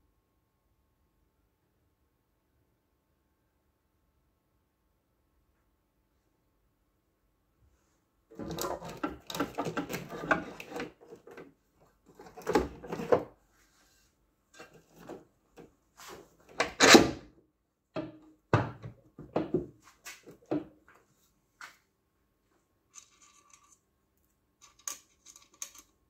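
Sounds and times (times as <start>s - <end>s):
parts knocking and clattering: 8.3s - 13.4s, 18.0s - 21.0s.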